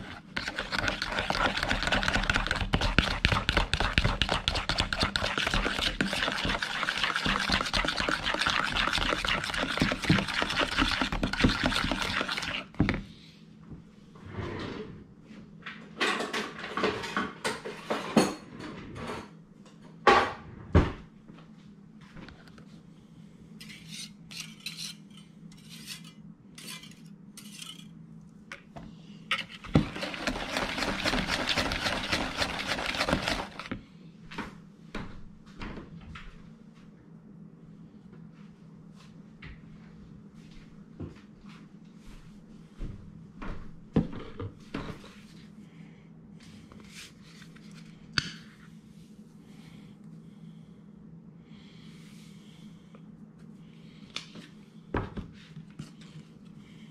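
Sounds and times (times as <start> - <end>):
fork scraping frosting in bowl: 0.0 - 12.7, 29.3 - 33.7.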